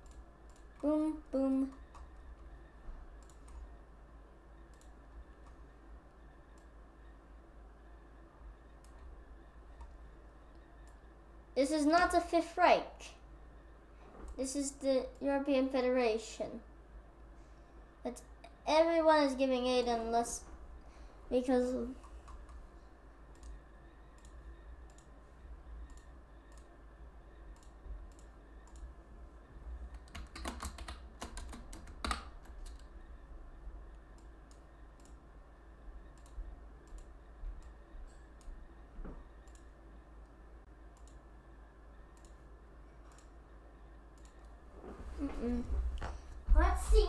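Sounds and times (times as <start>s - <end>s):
low steady hum: 0.0s - 47.0s
computer keyboard keystrokes: 29.9s - 32.9s.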